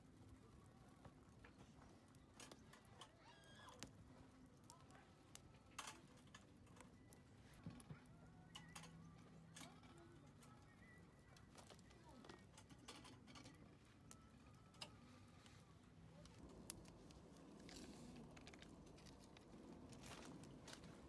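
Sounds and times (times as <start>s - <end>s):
wood fire crackling: 0.0s - 21.0s
grill rods clinking: 8.5s - 10.6s, 11.5s - 13.7s.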